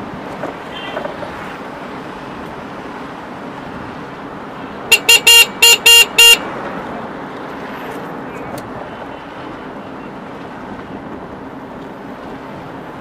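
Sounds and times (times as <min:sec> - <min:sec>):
road and wind noise: 0:00.0 - 0:13.0
vehicle horn beeping: 0:00.6 - 0:01.2, 0:04.9 - 0:06.5.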